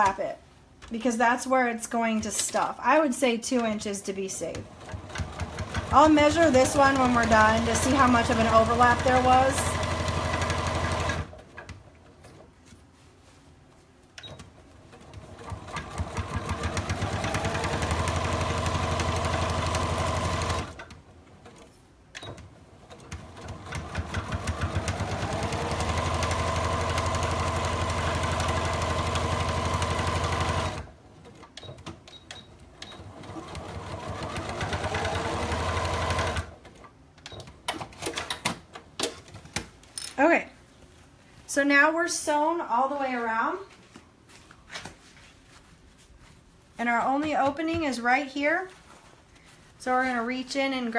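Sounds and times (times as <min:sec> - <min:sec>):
sewing machine humming: 0:04.7 - 0:11.4, 0:14.9 - 0:20.8, 0:22.8 - 0:30.9, 0:32.8 - 0:36.6.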